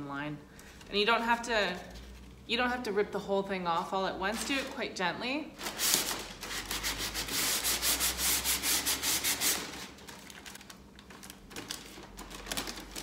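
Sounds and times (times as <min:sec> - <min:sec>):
sandpaper sanding strokes: 0:05.6 - 0:09.9.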